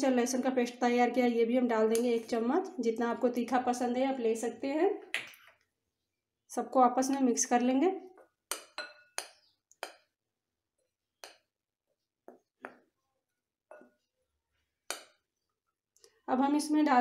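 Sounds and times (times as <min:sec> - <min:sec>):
clinks against glass bowl: 0:08.5 - 0:10.0.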